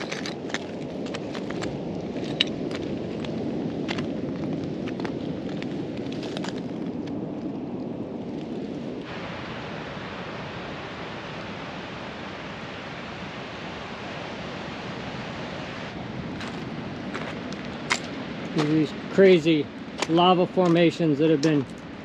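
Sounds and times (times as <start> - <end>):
distant surf: 0.0 - 22.0.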